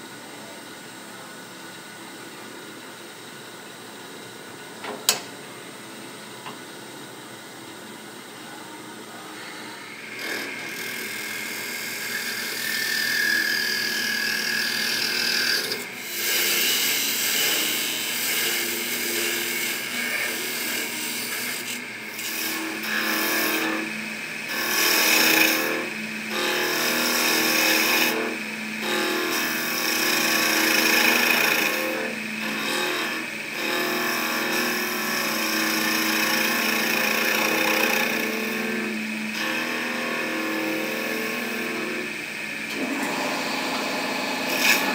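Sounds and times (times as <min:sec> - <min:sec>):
wood lathe humming: 0:09.8 - 0:44.9
turning tool cutting wood: 0:09.9 - 0:44.9.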